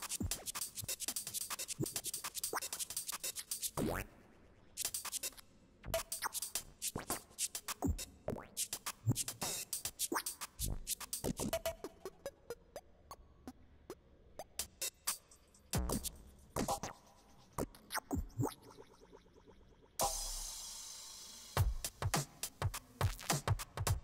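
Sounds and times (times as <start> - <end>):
electronic percussion clicks and ticks: 0.0 - 3.8, 4.8 - 13.6.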